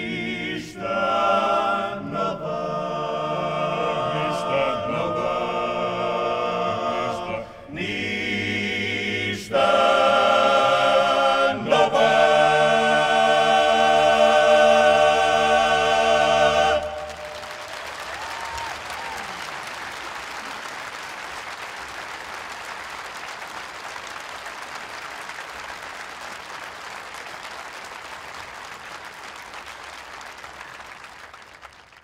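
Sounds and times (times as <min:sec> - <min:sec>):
choir singing a cappella: 0:00.0 - 0:17.7
audience applauding: 0:16.4 - 0:32.0.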